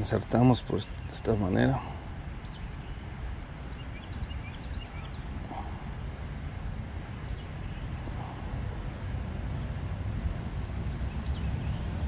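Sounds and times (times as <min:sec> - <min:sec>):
steady low rumble: 0:00.0 - 0:12.0
faint bird chirps: 0:00.7 - 0:06.2.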